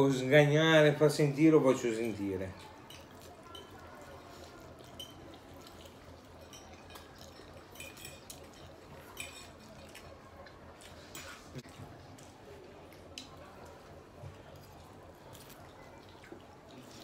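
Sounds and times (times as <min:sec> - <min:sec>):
fork clinking on a plate: 0:04.8 - 0:10.0.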